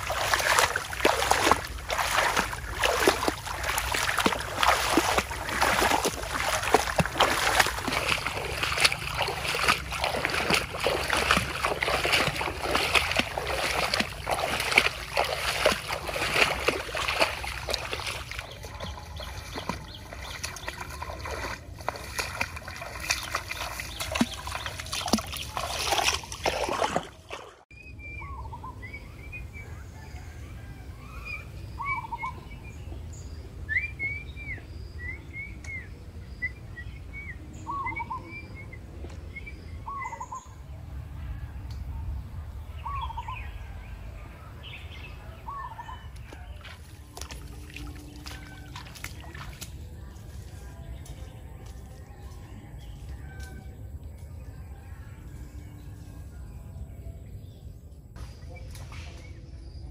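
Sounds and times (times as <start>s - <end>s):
footsteps through tall grass: 0.0s - 27.6s, 46.2s - 52.5s
birds chirping: 0.0s - 40.8s, 41.8s - 59.9s.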